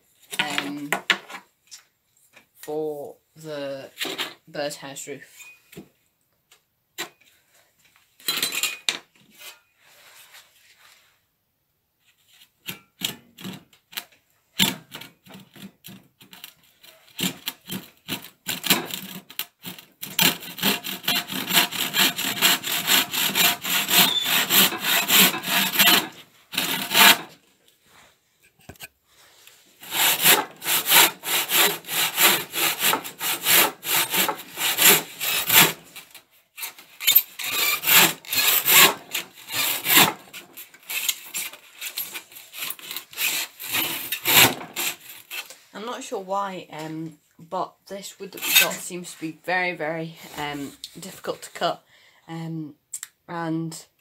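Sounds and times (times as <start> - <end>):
handsaw cutting wood: 16.4 - 27.4, 29.8 - 45.6, 48.4 - 49.0.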